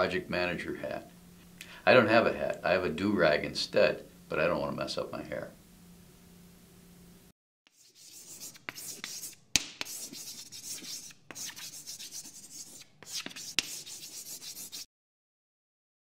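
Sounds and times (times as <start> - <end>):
chalk scratching on blackboard: 7.7 - 14.9
chalk tapping on board: 7.7 - 14.9.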